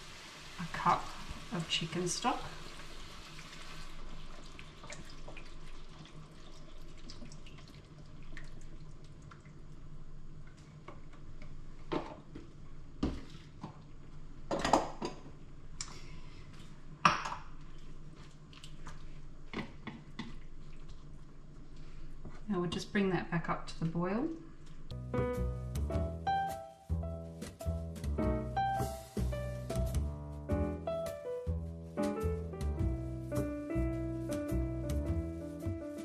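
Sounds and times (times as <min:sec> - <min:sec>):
mince bubbling in a frying pan: 0:00.0 - 0:11.8, 0:16.8 - 0:22.3.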